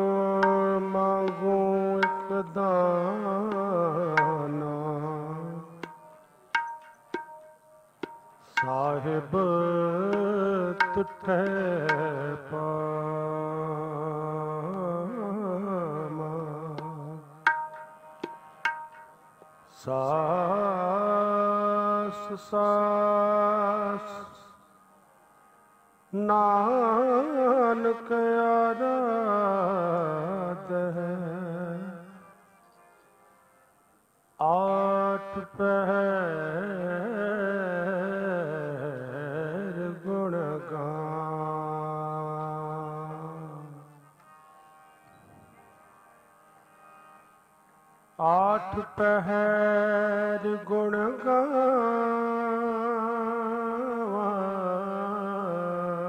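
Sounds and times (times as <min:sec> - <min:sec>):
ringing tabla strokes: 0:00.0 - 0:12.6, 0:16.3 - 0:20.2
devotional music with wavering melody: 0:00.0 - 0:56.0.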